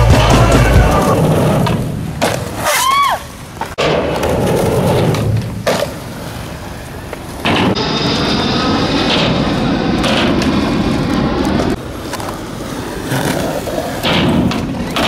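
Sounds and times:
skateboard rolling on concrete: 0:00.0 - 0:15.0
skateboard clacks and thuds: 0:10.0 - 0:15.0.

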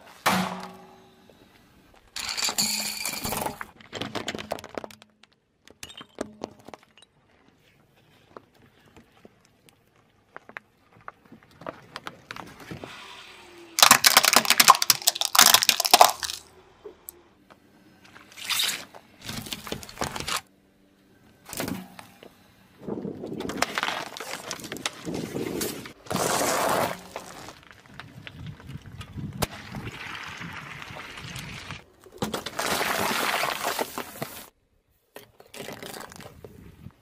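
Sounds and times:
car tyre crushing objects: 0:13.8 - 0:16.5, 0:18.1 - 0:20.5, 0:23.0 - 0:30.4, 0:32.0 - 0:34.5.

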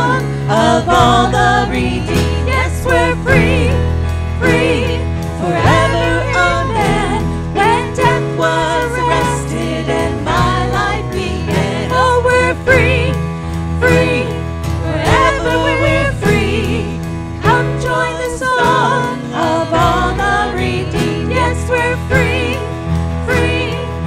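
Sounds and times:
person singing: 0:00.0 - 0:03.7, 0:04.4 - 0:13.0
band playing worship song: 0:00.0 - 0:24.0.

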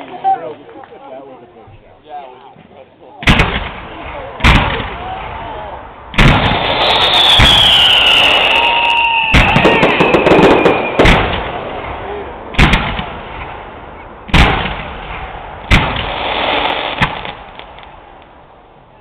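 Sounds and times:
firework bangs: 0:03.2 - 0:18.3
fireworks hissing and crackling: 0:03.2 - 0:18.3
firework whistle falling in pitch: 0:07.0 - 0:11.0.

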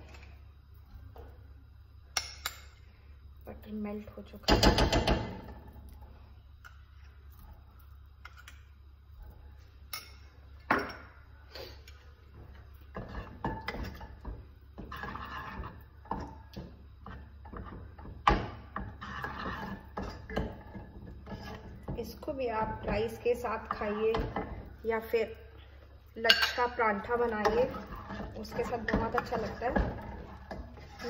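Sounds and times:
wooden spatula stirring in pot: 0:02.9 - 0:10.6, 0:11.4 - 0:31.0
spatula knocking and scraping pot: 0:04.4 - 0:05.8, 0:12.2 - 0:25.3, 0:26.2 - 0:31.0.

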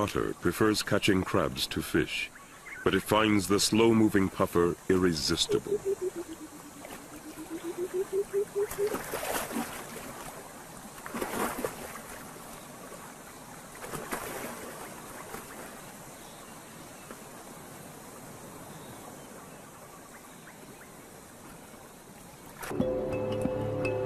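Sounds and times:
faint wash of moving water: 0:02.4 - 0:22.8
held low tone: 0:05.1 - 0:08.9
otter splashing in water: 0:08.6 - 0:10.4, 0:11.0 - 0:12.4, 0:13.7 - 0:15.8.

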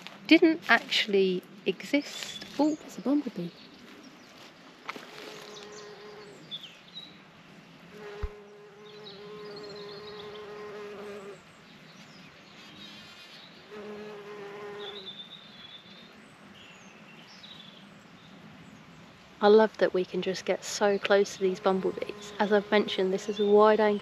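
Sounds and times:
bumblebee buzzing in flight: 0:05.0 - 0:06.4, 0:07.9 - 0:11.4, 0:12.9 - 0:15.1, 0:21.5 - 0:23.5.

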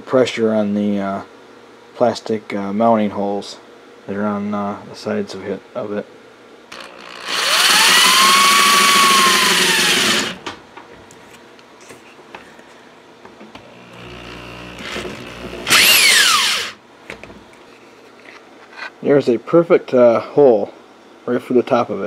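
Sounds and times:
drill cutting through plastic: 0:06.7 - 0:10.4, 0:13.7 - 0:16.8.

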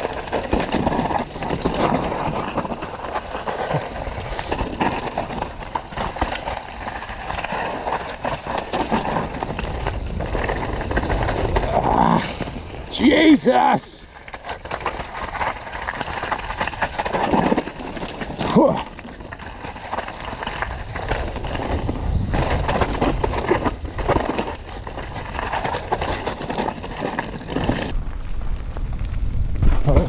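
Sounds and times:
wind rumbling on microphone: 0:00.0 - 0:13.2, 0:14.0 - 0:30.0
bike chain and frame rattling: 0:00.0 - 0:28.0
tyre roar over dirt and rock: 0:00.0 - 0:30.0
person shouting: 0:13.0 - 0:14.0.

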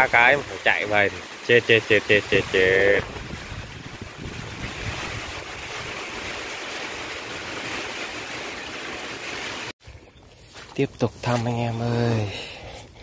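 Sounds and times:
steady rain falling: 0:00.0 - 0:09.7.

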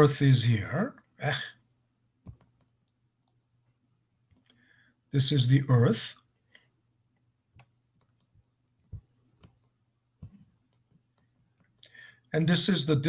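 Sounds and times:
faint clicks and taps of writing: 0:02.2 - 0:03.4, 0:06.5 - 0:11.8.

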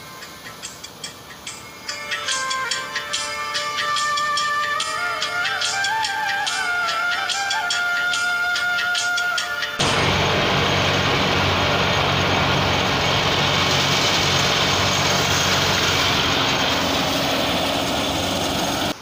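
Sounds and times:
tractor engine hum: 0:00.0 - 0:19.0
thresher rushing noise: 0:09.7 - 0:19.0.

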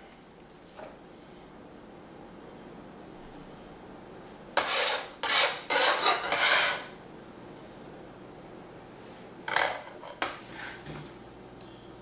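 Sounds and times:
scraper scraping plastic board: 0:04.6 - 0:06.9.

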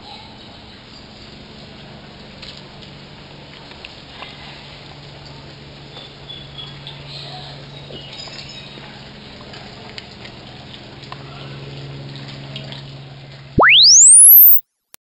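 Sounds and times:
electronic tone sweeping upward: 0:13.6 - 0:14.6.

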